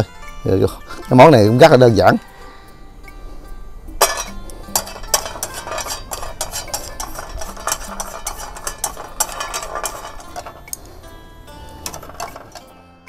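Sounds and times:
dried herbs rattling and rustling: 0:04.0 - 0:12.8.

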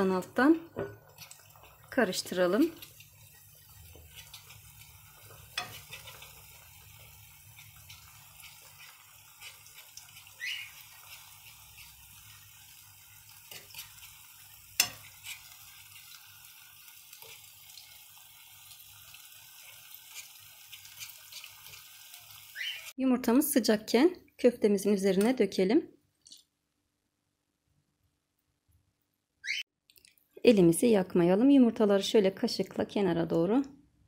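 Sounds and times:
eggs sizzling in a pan: 0:00.0 - 0:23.0
utensil scraping and clicking on pan: 0:00.8 - 0:01.9, 0:02.7 - 0:06.6, 0:07.5 - 0:12.3, 0:13.4 - 0:15.8, 0:20.0 - 0:21.9.

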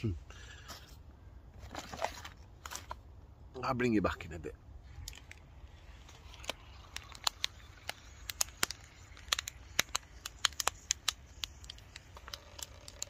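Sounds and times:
paper pouch crackling: 0:04.9 - 0:13.0.

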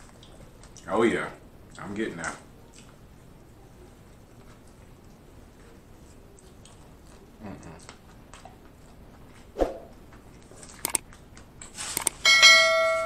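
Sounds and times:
chewing a sandwich: 0:00.0 - 0:12.1
quick clicks: 0:10.8 - 0:11.0, 0:12.0 - 0:12.2.

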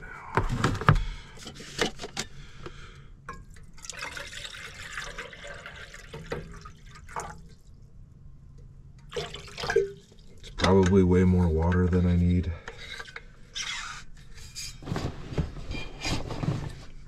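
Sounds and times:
water pouring into cup: 0:03.5 - 0:07.7, 0:09.1 - 0:10.6.

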